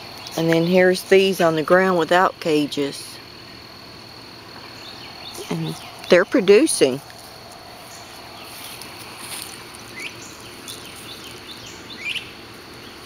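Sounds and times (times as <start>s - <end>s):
insects droning: 0.0s - 13.0s
bird chirps: 9.8s - 13.0s.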